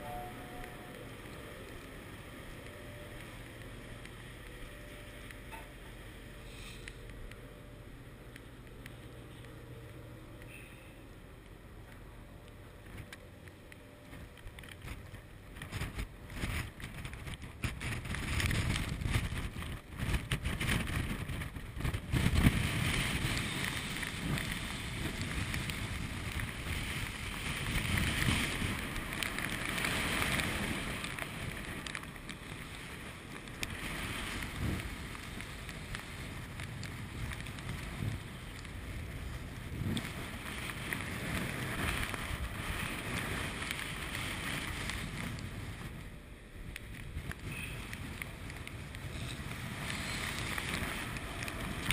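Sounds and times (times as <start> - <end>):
waves breaking along hull: 14.1 - 46.1, 46.7 - 51.9
wind buffeting microphone: 14.1 - 51.9.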